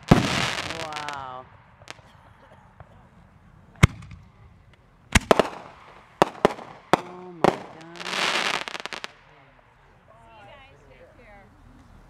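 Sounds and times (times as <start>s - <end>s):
firework shells bursting: 0.0s - 2.1s, 3.8s - 9.3s.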